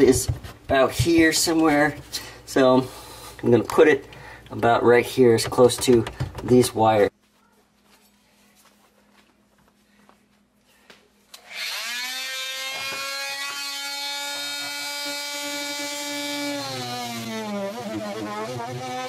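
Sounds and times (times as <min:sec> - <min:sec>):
oscillating tool buzzing: 0:11.4 - 0:19.0.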